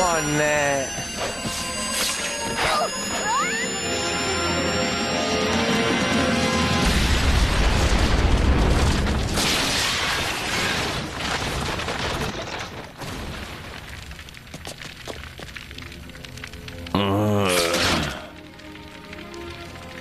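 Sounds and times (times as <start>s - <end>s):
music: 0.0s - 7.4s, 15.5s - 20.0s.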